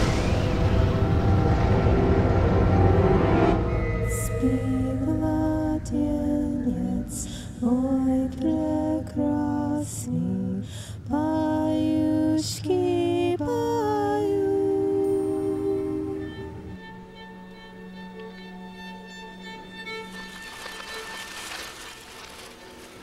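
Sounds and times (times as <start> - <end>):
low steady drone: 0.0 - 22.9
woman singing slow melody: 3.9 - 17.0.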